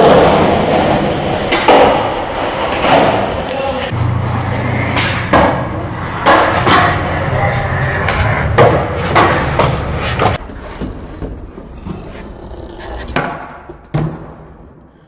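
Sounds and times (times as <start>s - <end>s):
skateboard rolling on concrete: 0.0s - 14.8s
skateboard deck clacks: 4.9s - 7.0s.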